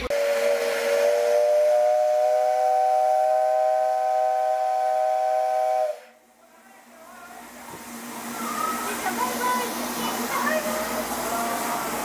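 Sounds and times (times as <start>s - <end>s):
steam locomotive whistle blast: 0.0s - 6.2s.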